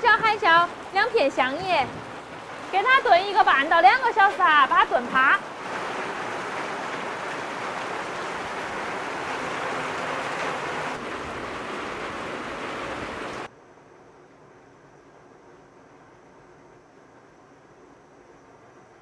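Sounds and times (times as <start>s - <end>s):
steady rain falling: 0.0s - 13.5s.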